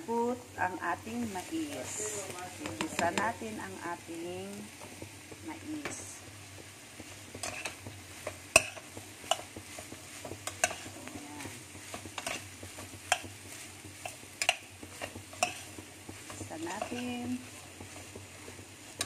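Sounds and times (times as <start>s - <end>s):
faint sizzle: 0.0s - 19.0s
metal spoon clinking against pot: 14.4s - 14.6s.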